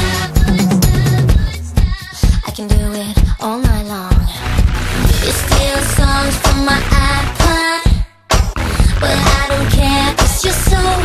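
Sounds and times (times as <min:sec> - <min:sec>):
drum hits: 0:00.0 - 0:02.9, 0:08.3 - 0:09.5
pop song: 0:00.0 - 0:11.0.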